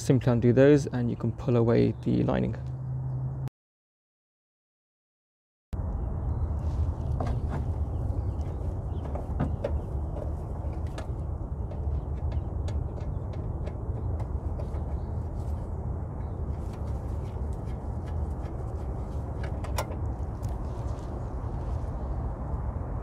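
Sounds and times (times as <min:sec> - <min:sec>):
steady low hum: 0:05.8 - 0:23.0.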